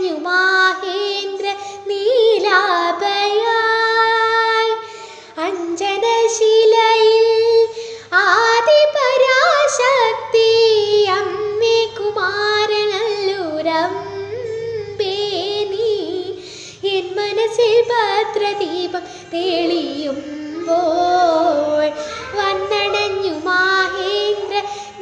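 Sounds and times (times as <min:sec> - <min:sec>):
ornamented gliding melody: 0:10.6 - 0:25.0.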